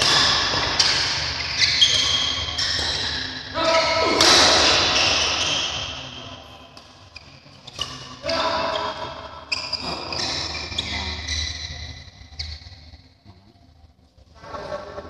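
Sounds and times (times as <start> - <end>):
sneaker squeaks on court floor: 0.0 - 13.0
racket hitting shuttlecock: 4.1 - 5.5.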